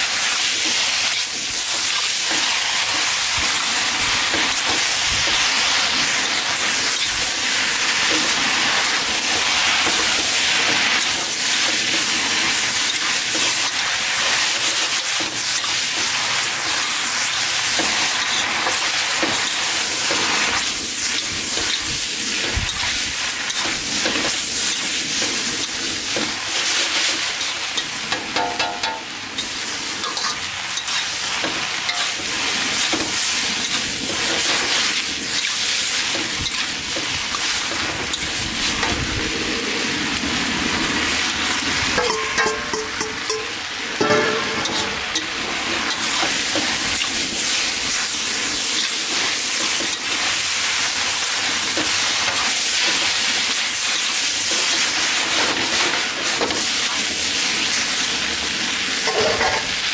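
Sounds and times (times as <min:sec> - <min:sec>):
food sizzling in a wok: 0:00.0 - 0:59.9
metal spatula stirring in wok: 0:09.6 - 0:38.6, 0:42.0 - 0:50.1.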